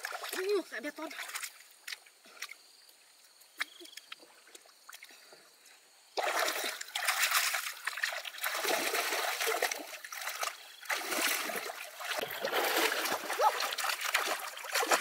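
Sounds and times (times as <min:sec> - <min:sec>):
water splashing: 0:00.0 - 0:02.5, 0:06.2 - 0:15.0.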